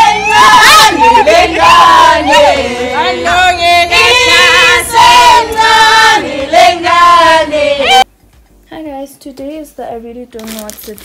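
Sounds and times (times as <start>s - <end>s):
women singing together: 0.0s - 8.1s.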